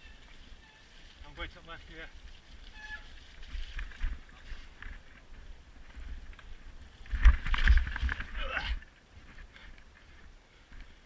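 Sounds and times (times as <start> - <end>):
bike clattering and rattling: 2.2 - 8.8.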